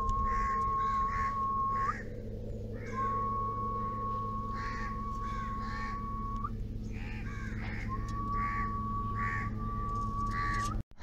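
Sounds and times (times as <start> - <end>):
steady high whine: 0.0 - 11.0
steady low hum: 0.0 - 11.0
crows cawing: 0.2 - 2.1, 2.7 - 3.0, 4.4 - 6.1, 6.9 - 9.6, 10.3 - 10.7.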